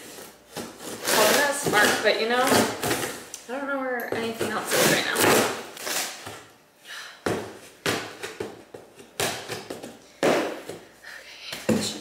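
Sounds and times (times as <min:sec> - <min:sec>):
shears cutting cardboard: 0:00.0 - 0:03.2, 0:04.2 - 0:06.3.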